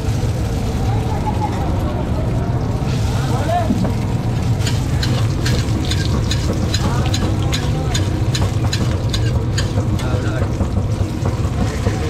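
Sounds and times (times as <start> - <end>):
faint voices: 0.1 - 12.0.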